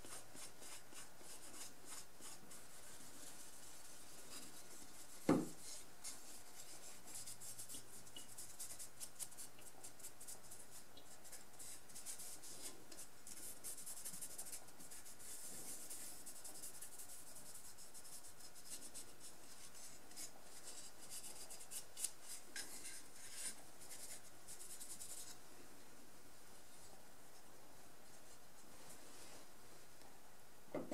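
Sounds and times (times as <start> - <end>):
light knocks on wood: 5.3 - 5.5.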